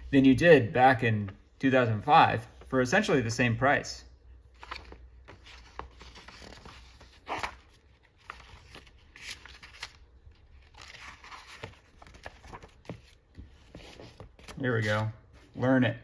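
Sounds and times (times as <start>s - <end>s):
magazine pages rustling: 4.5s - 15.6s.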